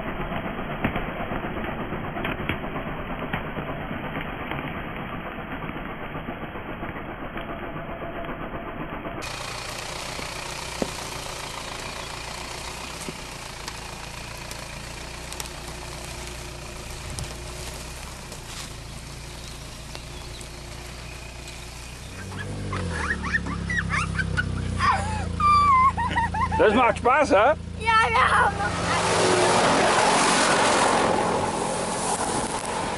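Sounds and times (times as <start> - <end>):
diesel engine running at low revs: 0.0 - 32.9.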